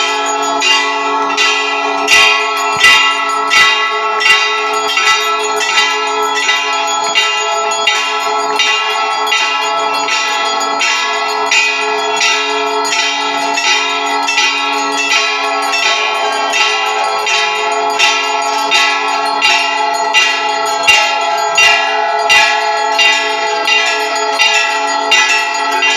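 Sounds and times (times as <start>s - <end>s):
brass bells ringing: 0.0s - 25.9s.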